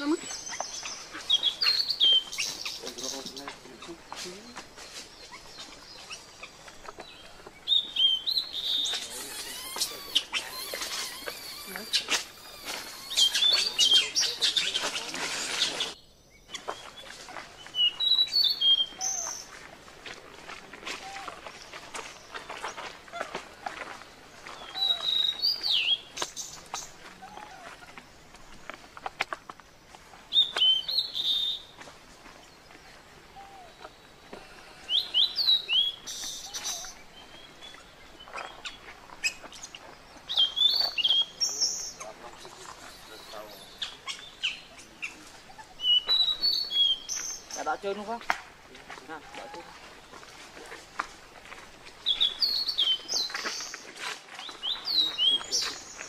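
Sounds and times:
scuffling in dry leaves: 0.0s - 56.0s
short high chirping calls: 7.7s - 17.1s, 24.6s - 26.9s, 30.3s - 31.7s, 34.9s - 47.8s
baby monkey squeaking: 8.8s - 15.9s.

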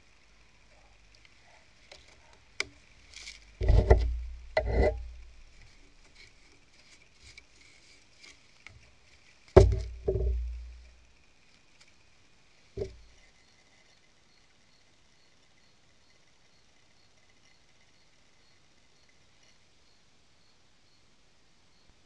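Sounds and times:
jars thudding on wooden planks: 3.6s - 5.4s, 9.6s - 10.9s, 12.8s - 13.0s.

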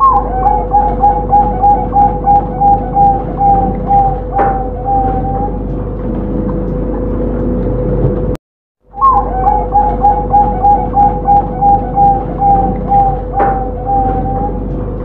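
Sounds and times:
dove cooing: 0.0s - 5.9s, 8.9s - 14.8s
background hum and noise: 0.0s - 15.0s.

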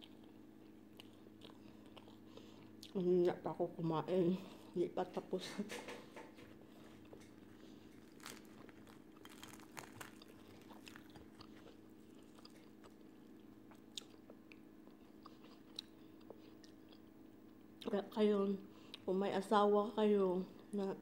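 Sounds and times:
chewing and crunching: 0.0s - 3.1s, 6.2s - 17.9s
steady low hum: 0.0s - 21.0s
breading crackling: 6.4s - 14.2s.

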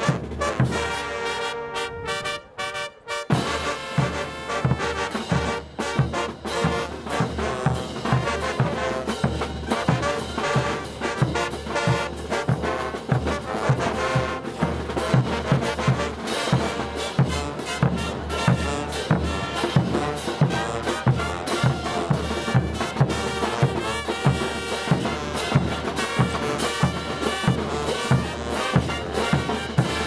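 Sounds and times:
brass band playing dance music: 0.0s - 30.0s.

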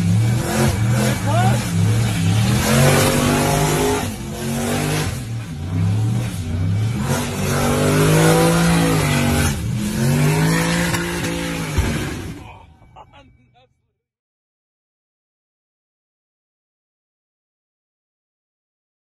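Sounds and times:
car engine revving: 0.0s - 12.5s.

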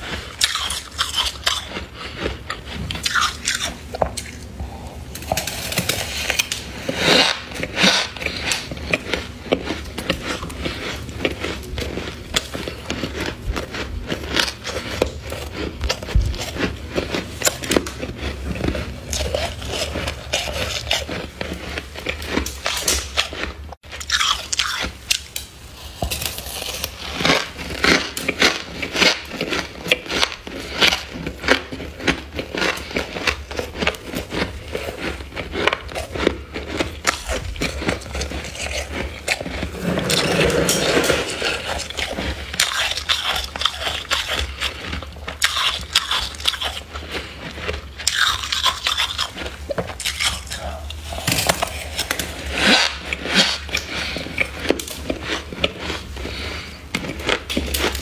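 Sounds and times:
frost being chewed with crunches: 0.0s - 58.0s.

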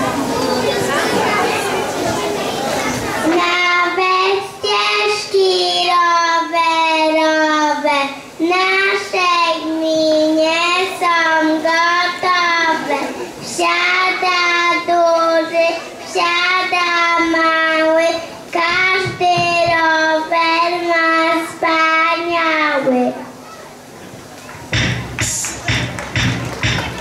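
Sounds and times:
child singing into microphone: 2.9s - 23.2s.

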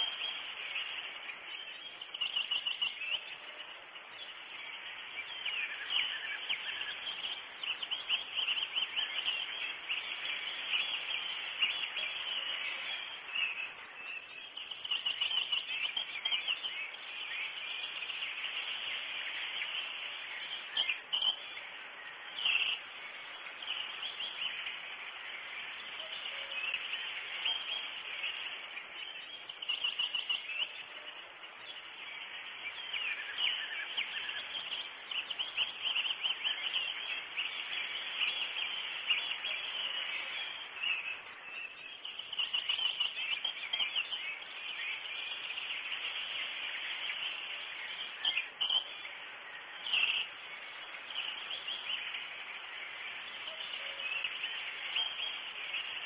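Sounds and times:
birds chirping and trilling: 0.0s - 56.0s
insects hissing: 0.0s - 56.0s.

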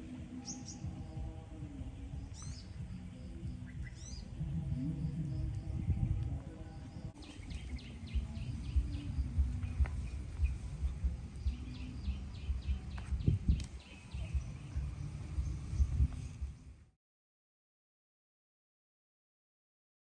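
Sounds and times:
bird chirping: 0.0s - 16.8s
low thudding and rumble: 4.3s - 16.8s.

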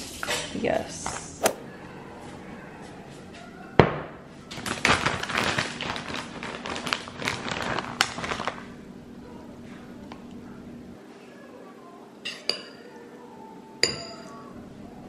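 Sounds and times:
plastic bag crinkling: 4.5s - 8.8s.

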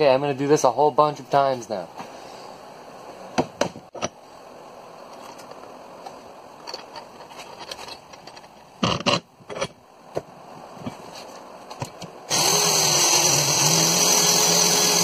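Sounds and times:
steady hiss: 0.0s - 13.7s
metal brackets clicking and scraping: 6.6s - 9.8s.

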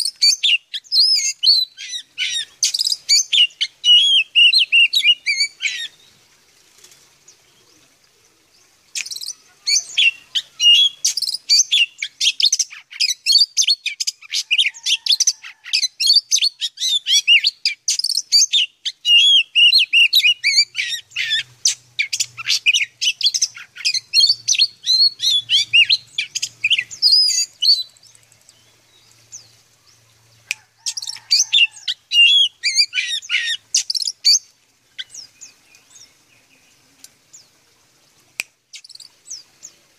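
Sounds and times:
bird singing high whistles: 31.0s - 34.4s.

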